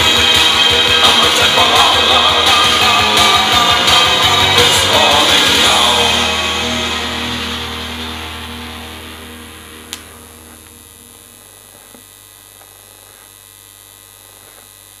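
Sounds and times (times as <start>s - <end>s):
rock music from vinyl record: 0.0s - 12.0s
record player electrical hum: 5.6s - 15.0s.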